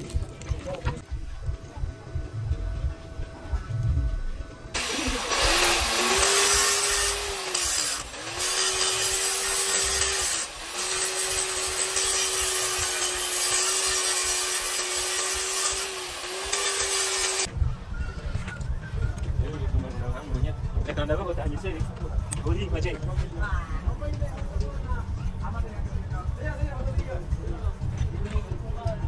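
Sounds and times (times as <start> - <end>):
angle grinder grinding metal: 4.8 - 17.5.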